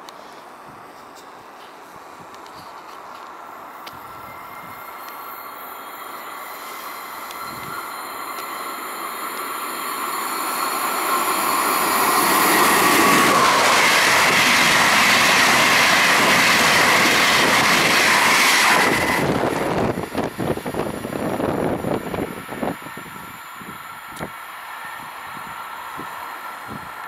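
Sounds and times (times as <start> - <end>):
train passing at speed: 0.0 - 27.0
slipstream buffeting: 6.8 - 23.0.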